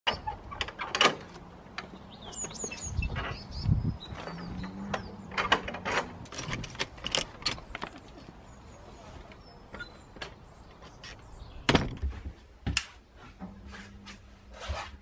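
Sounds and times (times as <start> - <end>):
gate latch clanking: 0.1 - 1.4, 4.7 - 7.7
birds chirping: 0.1 - 12.2
door clicks and knocks: 11.7 - 12.1.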